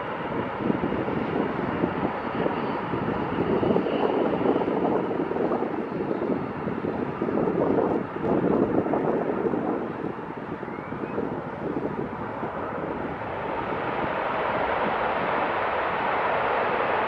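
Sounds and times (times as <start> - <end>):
fighter jet engine rumble: 0.0 - 17.0.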